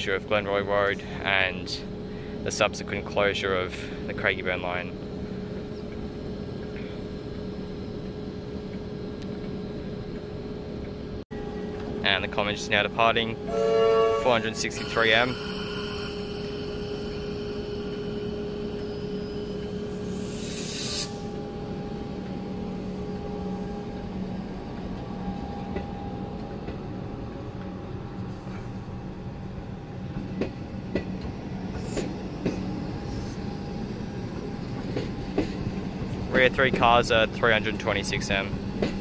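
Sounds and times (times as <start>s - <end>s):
electric train humming: 0.0s - 39.0s
short rising hiss: 20.1s - 21.3s.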